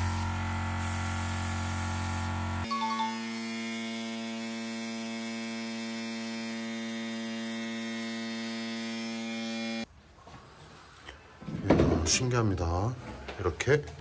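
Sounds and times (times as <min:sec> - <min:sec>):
air compressor humming: 0:00.0 - 0:09.8.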